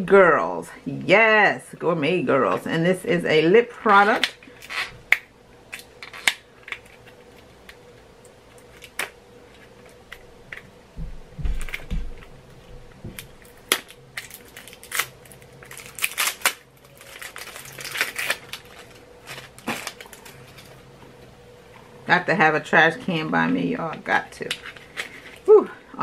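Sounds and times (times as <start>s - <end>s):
dull low thumps: 10.9s - 13.4s
packaging clicks and crackles: 13.2s - 20.8s.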